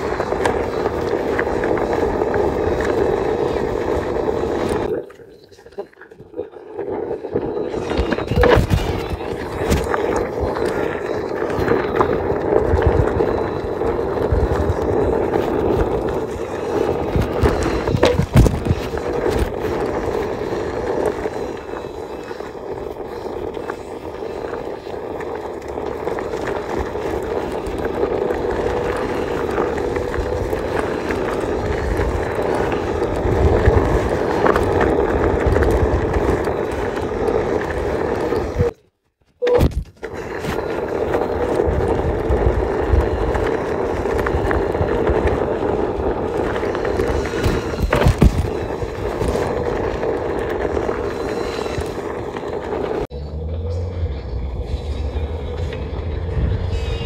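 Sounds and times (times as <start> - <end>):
low rumble: 52.7 - 57.0.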